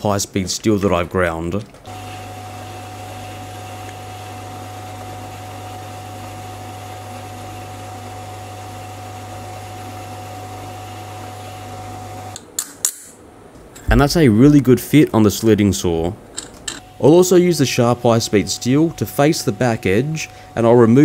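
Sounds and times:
metal lathe humming and whining: 16.8 - 21.0.

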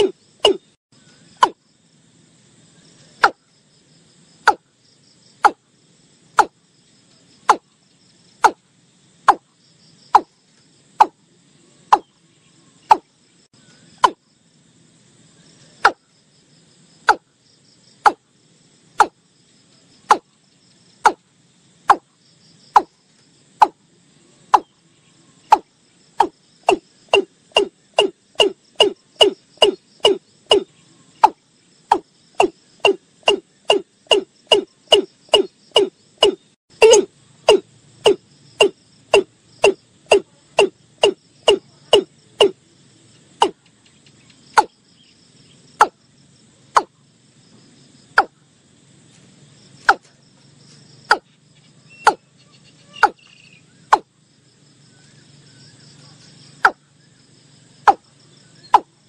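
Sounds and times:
bird calling sharp clipped notes: 0.0 - 0.7, 25.5 - 42.6, 52.0 - 54.0.

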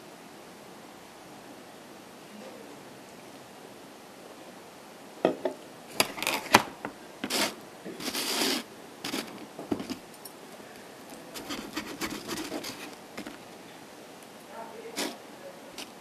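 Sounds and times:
scratching and clicking of handling: 5.9 - 16.0
short hissing bursts: 7.2 - 9.4, 14.8 - 16.0.

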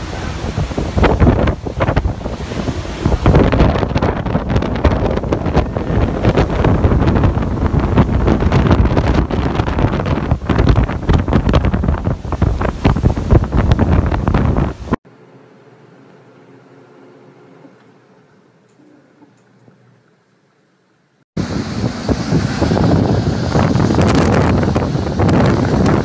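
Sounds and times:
wind buffeting microphone: 0.0 - 15.0, 21.4 - 26.0.

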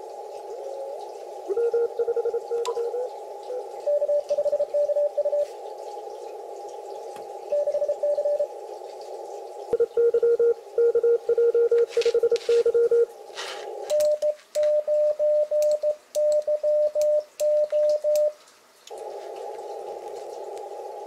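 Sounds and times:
morse code beeps: 1.5 - 3.1, 9.8 - 13.1, 13.9 - 18.4.

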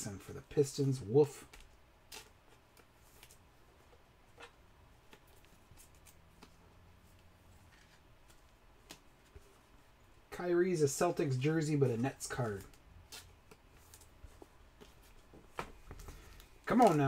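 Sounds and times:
trading cards clicking and sliding: 11.7 - 17.0.

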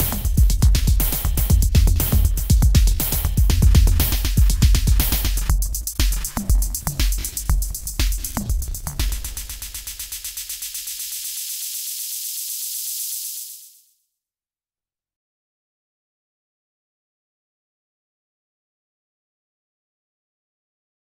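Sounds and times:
drum machine beat: 0.0 - 13.8.

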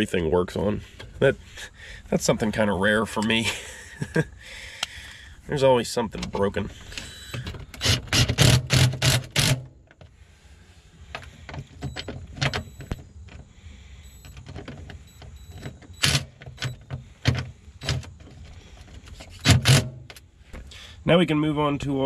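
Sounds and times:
impact driver driving bolts: 7.4 - 9.7, 19.2 - 20.2.

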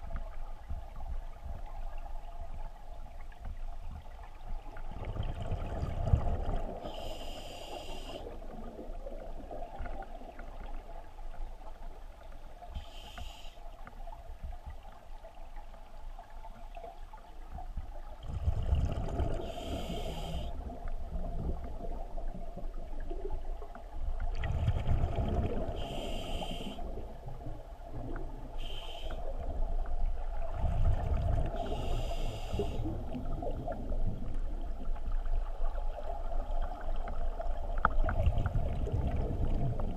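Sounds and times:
underwater hum: 0.0 - 39.9
bubbles rumbling underwater: 3.3 - 7.0, 17.6 - 26.1, 29.2 - 32.0, 32.6 - 39.9
regulator breathing hiss: 6.8 - 8.3, 12.8 - 13.6, 19.4 - 20.6, 25.8 - 26.9, 28.6 - 29.3, 31.6 - 33.0.

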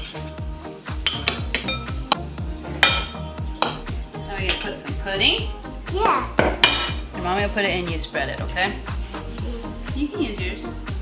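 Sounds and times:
metal spoons clinking on glass bowls: 0.0 - 0.4, 1.0 - 2.0, 4.4 - 4.9, 6.6 - 7.0
background music: 0.0 - 11.0.

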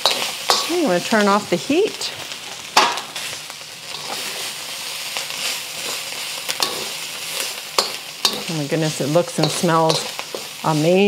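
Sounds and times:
metal ladle scraping a wok: 0.0 - 1.0, 3.8 - 11.0
meat sizzling in a wok: 0.0 - 11.0.

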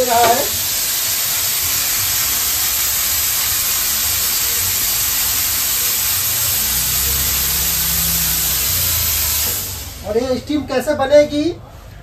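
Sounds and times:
steam jet hissing: 0.0 - 11.1.

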